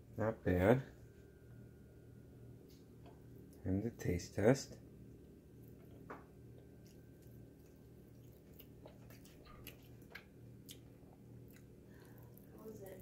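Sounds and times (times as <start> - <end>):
low steady hum: 0.0 - 13.0
faint chewing: 5.2 - 13.0.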